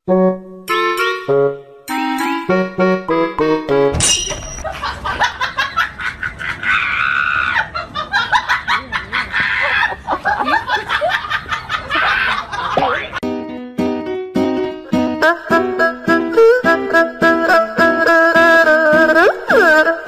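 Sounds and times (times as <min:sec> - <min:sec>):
music: 0:00.0 - 0:04.0, 0:13.2 - 0:20.0
people laughing: 0:04.6 - 0:13.2.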